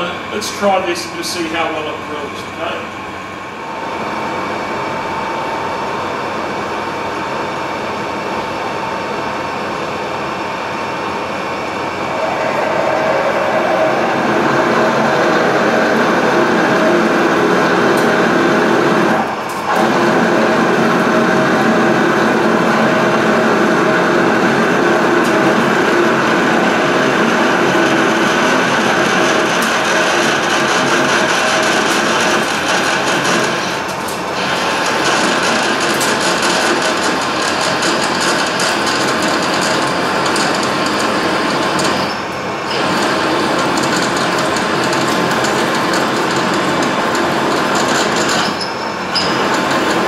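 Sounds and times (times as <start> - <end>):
lathe machine hum: 0.0 - 50.0
steady machine tones: 0.0 - 50.0.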